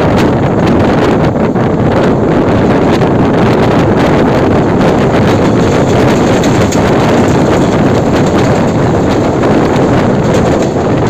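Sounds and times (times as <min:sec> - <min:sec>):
train running at speed: 0:00.0 - 0:11.0
wind buffeting microphone: 0:00.0 - 0:11.0
wheels clicking over track: 0:02.8 - 0:11.0.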